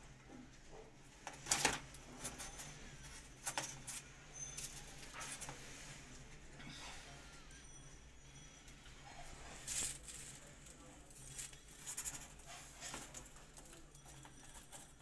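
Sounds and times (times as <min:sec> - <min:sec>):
plastic bag rustling: 0:09.2 - 0:15.0.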